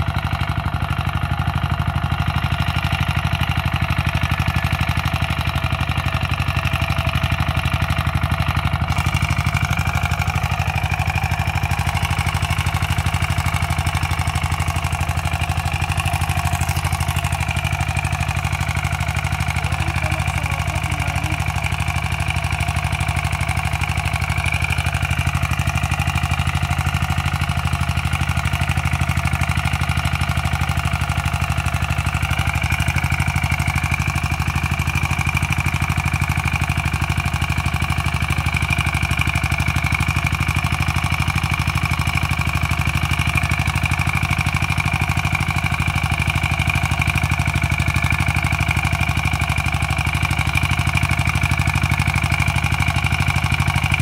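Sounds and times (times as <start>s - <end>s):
tiller engine running: 0.0s - 54.0s
blades working soil: 4.9s - 27.4s.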